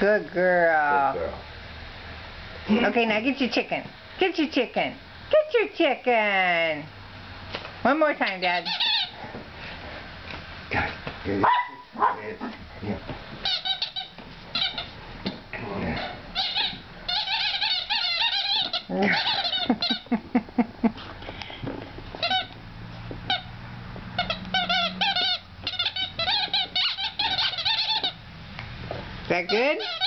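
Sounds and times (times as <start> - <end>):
squeaky dog toy squeaking: 8.5 - 9.2, 13.4 - 15.0, 16.0 - 20.0, 22.2 - 22.5, 23.3 - 23.5, 24.1 - 28.2, 29.4 - 30.0
dog chewing toy: 8.6 - 9.2, 13.4 - 15.0, 15.7 - 20.1, 21.6 - 28.2, 29.3 - 30.0.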